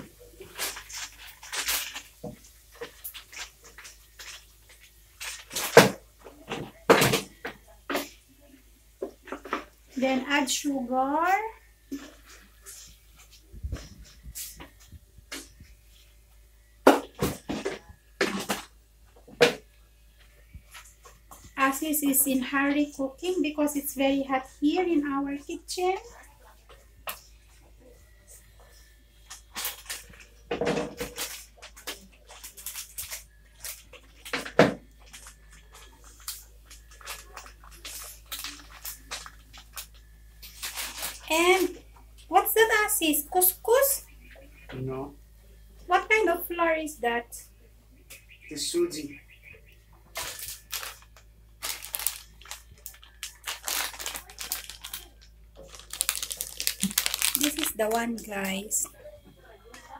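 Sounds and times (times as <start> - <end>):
plastic food packet rustling: 0.1 - 7.4, 28.7 - 41.8, 50.1 - 58.9.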